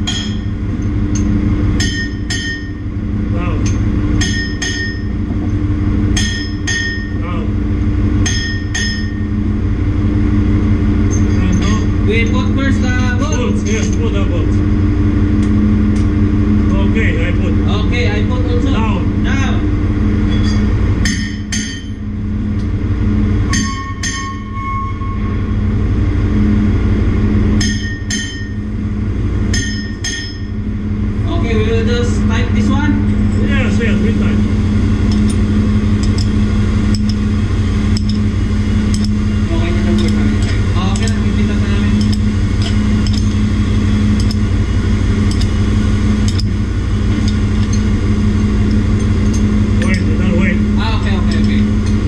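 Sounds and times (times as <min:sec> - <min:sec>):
sharp metallic clinks: 0:00.0 - 0:02.8, 0:03.6 - 0:05.6, 0:06.2 - 0:07.2, 0:08.2 - 0:09.3, 0:11.0 - 0:11.9, 0:20.2 - 0:22.1, 0:23.5 - 0:24.6, 0:27.6 - 0:28.6, 0:29.5 - 0:30.6, 0:35.0 - 0:37.3, 0:39.8 - 0:43.5, 0:51.1 - 0:52.0
engine-room machinery hum: 0:00.0 - 0:52.0.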